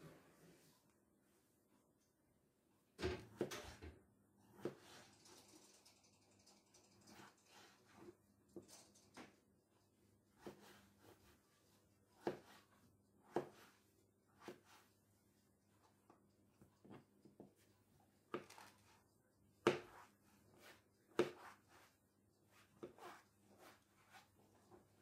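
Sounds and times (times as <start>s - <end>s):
knife chopping on wooden board: 12.2s - 12.6s, 13.2s - 13.6s, 19.6s - 20.0s, 21.1s - 21.5s.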